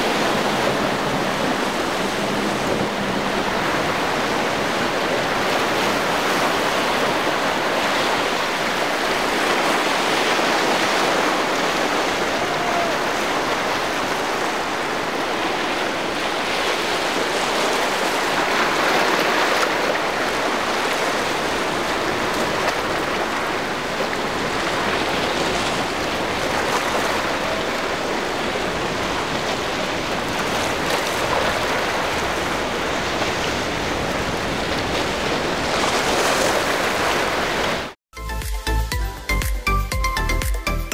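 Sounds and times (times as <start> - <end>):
surf and churning water: 0.0 - 38.0
music: 38.2 - 40.9.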